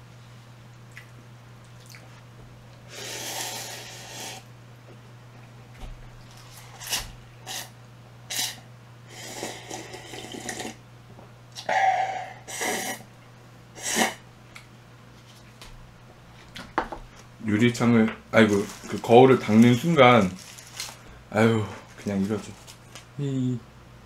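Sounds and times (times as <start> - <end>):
mouth sounds of eating: 8.3 - 10.8.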